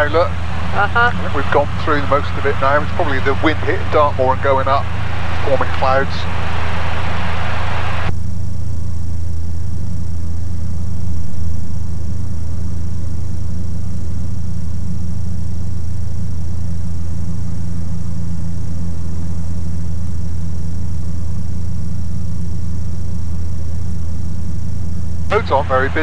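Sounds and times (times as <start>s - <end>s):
aircraft engine and propeller drone: 0.0s - 26.0s.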